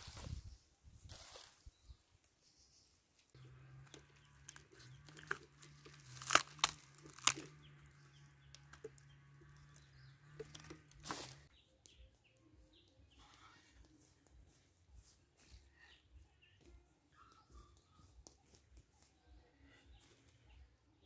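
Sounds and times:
dry leaves crackling and rustling: 0:01.1 - 0:01.6, 0:03.8 - 0:08.0, 0:10.6 - 0:11.5
sharp crunches: 0:05.1 - 0:07.7.

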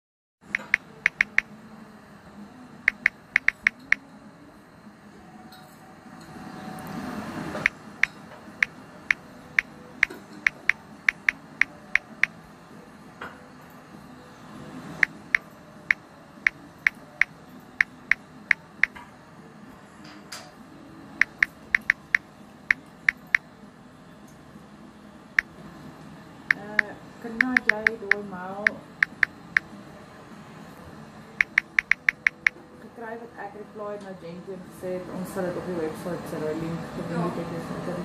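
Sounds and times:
phone keyboard tap clicks: 0:00.6 - 0:01.4, 0:02.9 - 0:04.0, 0:21.2 - 0:22.2, 0:31.4 - 0:32.6.

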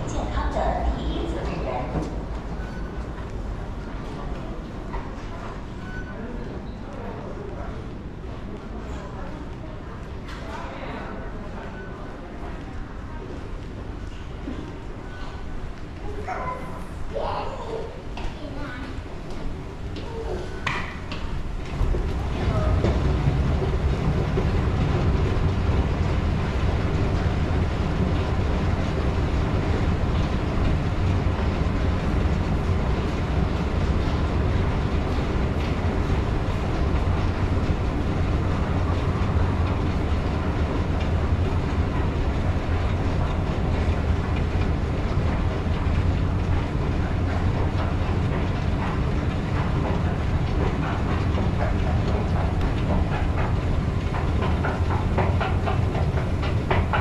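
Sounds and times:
escalator running: 0:21.5 - 0:57.0.

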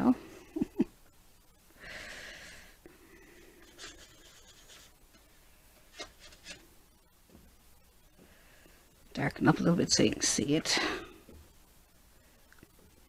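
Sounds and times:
bristle brush scratching canvas: 0:03.6 - 0:05.1, 0:05.9 - 0:06.6.

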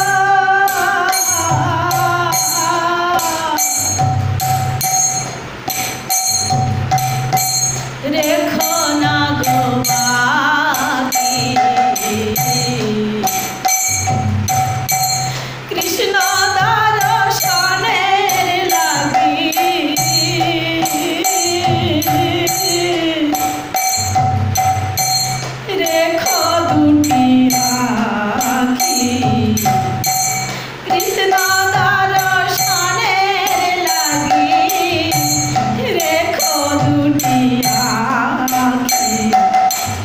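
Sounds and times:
woman singing into a microphone: 0:00.0 - 0:04.2, 0:08.0 - 0:13.8, 0:15.3 - 0:24.0, 0:25.6 - 0:39.8
music with jingling rhythm: 0:00.0 - 0:40.0.

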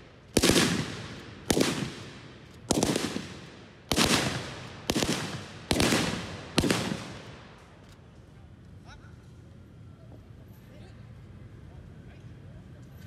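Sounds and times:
echoing gunshots: 0:00.0 - 0:07.7.

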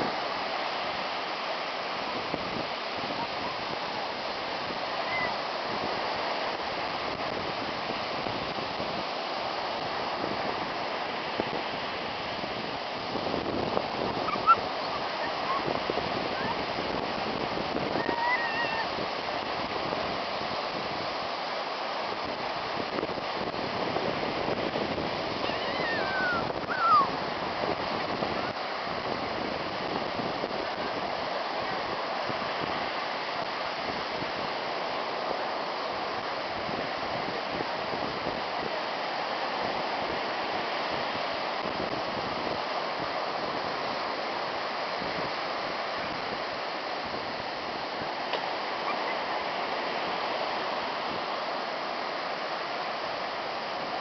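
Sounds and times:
ocean surf breaking: 0:00.0 - 0:54.0
short falling cries: 0:18.0 - 0:18.9, 0:25.4 - 0:27.1.

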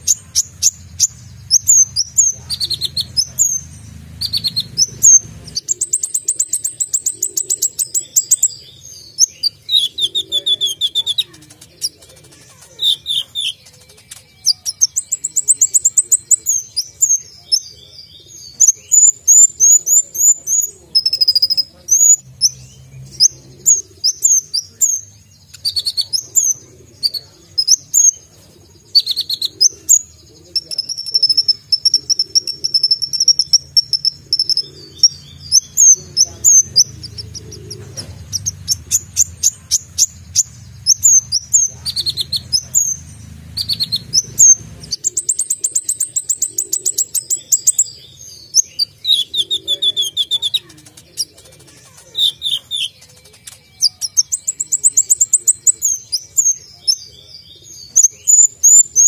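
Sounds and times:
bird singing chirps and trills: 0:00.0 - 0:59.0.

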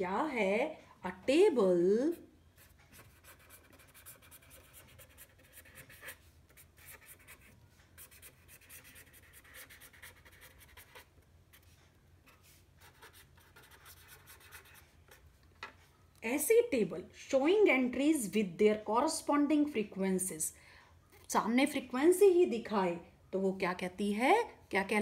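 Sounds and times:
felt-tip pen scratching on paper: 0:02.6 - 0:15.2.

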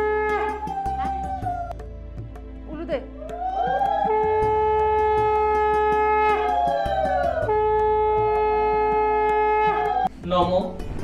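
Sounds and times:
conch shell blown in long notes: 0:00.0 - 0:01.8, 0:03.3 - 0:10.1.

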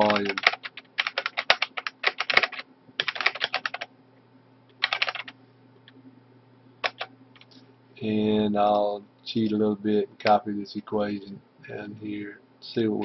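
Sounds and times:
typing on a keyboard: 0:00.0 - 0:03.9, 0:04.8 - 0:05.3, 0:06.8 - 0:07.5
faint low hum: 0:00.0 - 0:13.0.

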